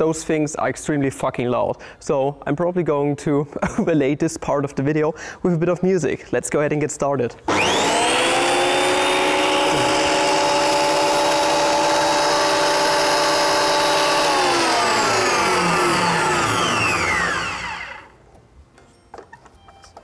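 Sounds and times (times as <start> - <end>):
planer motor whining: 7.5 - 18.2.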